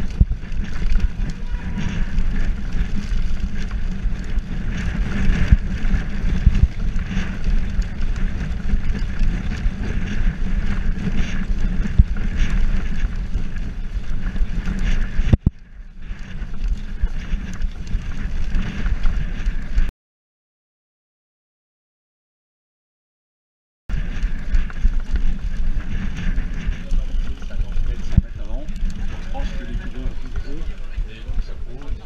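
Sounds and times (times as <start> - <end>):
bike rumbling and rattling: 0.0 - 19.9, 23.9 - 32.0
wind buffeting microphone: 0.0 - 19.9, 23.9 - 32.0.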